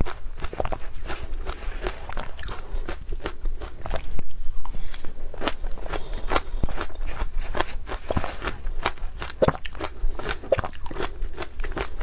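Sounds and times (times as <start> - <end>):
crunching and chewing ice: 0.0 - 12.0.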